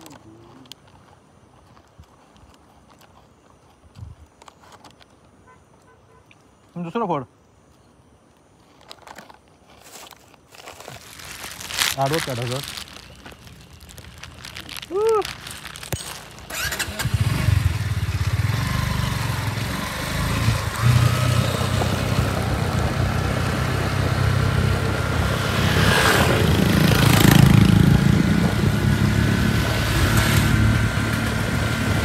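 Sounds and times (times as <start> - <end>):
motorbike engine running: 16.4 - 32.0.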